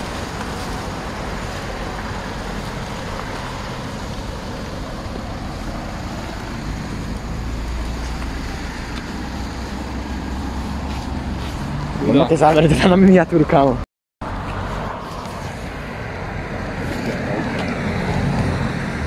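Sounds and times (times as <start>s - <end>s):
tyres hissing on wet road: 0.0s - 13.4s, 14.3s - 19.0s
low engine rumble: 0.0s - 19.0s.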